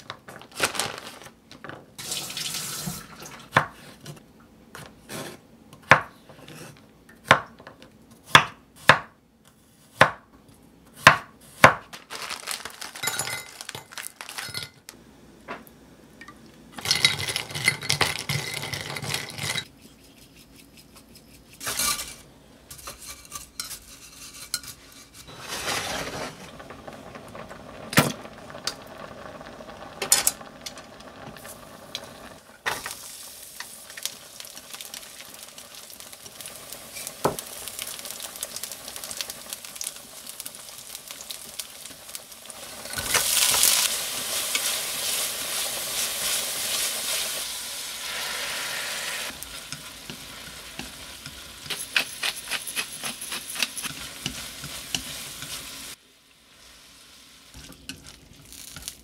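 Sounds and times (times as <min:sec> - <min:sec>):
plastic bag rustling: 0:00.0 - 0:01.8, 0:11.9 - 0:14.9, 0:25.3 - 0:27.2.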